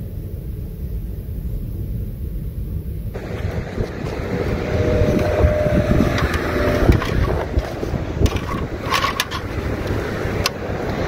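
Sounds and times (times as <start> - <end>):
wind buffeting microphone: 0.2 - 11.0
scouring pad scrubbing metal: 3.2 - 11.0.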